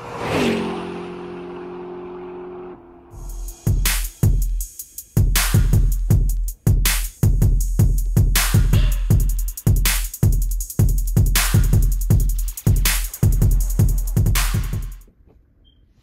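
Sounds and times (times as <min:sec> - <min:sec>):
hip-hop drum machine beat: 0:03.2 - 0:15.1.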